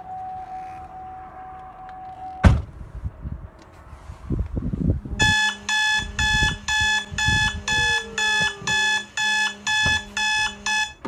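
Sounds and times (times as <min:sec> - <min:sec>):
loud electronic beeps: 0:05.2 - 0:11.0.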